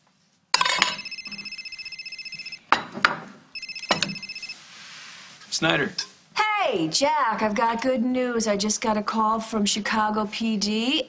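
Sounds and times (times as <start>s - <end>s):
telephone ringing: 0.7s - 2.7s, 3.6s - 4.6s.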